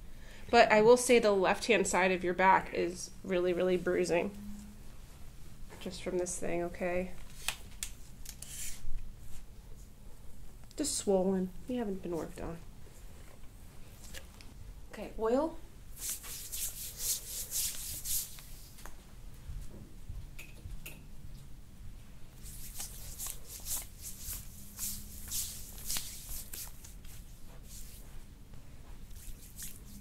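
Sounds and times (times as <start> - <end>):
oiled hands rubbing skin: 16.0 - 18.9, 22.4 - 30.0.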